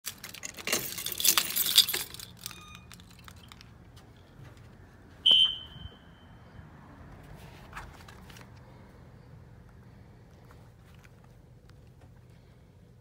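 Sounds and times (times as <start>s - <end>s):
keys jangling: 0.1s - 3.7s
high alarm horn tone: 5.2s - 6.6s.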